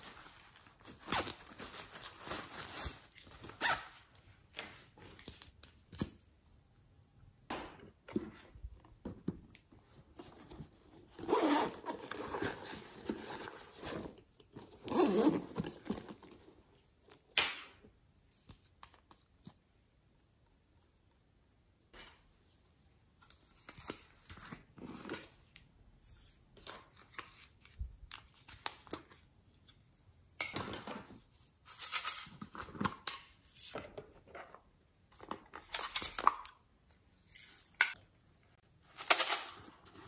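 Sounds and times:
rustles and clicks of plastic toys: 22.0s - 40.0s.

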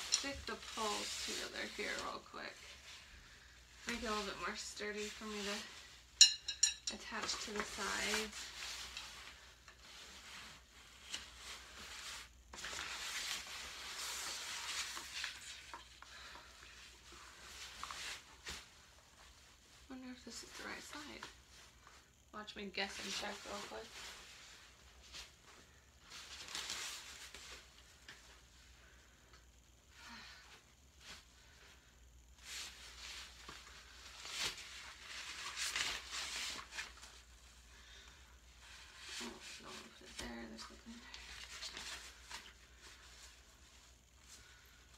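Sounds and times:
fabric rustling: 0.0s - 6.4s, 30.1s - 44.9s.

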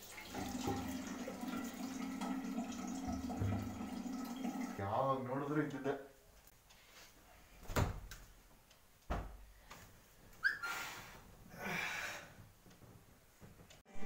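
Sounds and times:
soft thumps on sofa: 9.1s - 9.4s
breathy exhales: 10.6s - 12.4s.

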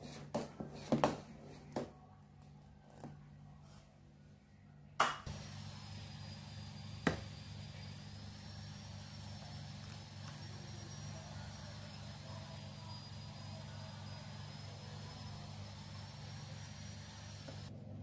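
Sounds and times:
steady low hum: 2.0s - 18.0s
faint high whine: 4.6s - 17.7s.

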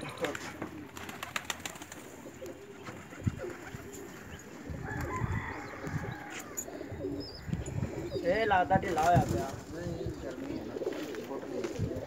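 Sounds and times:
pigeon wing claps: 0.0s - 2.0s
pigeons cooing: 0.0s - 12.0s.

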